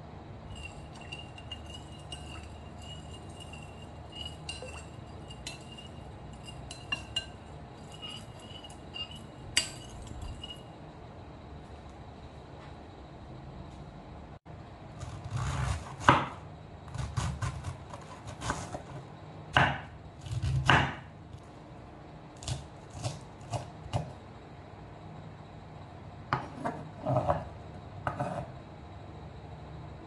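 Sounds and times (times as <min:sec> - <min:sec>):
knife slicing cabbage: 0:15.0 - 0:19.0.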